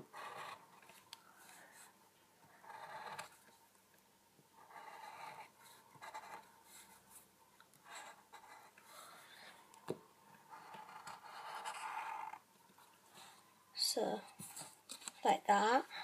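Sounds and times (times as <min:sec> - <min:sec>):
highlighter pen scratching paper: 0:00.0 - 0:02.0, 0:02.6 - 0:03.4, 0:04.6 - 0:09.4, 0:10.4 - 0:12.4.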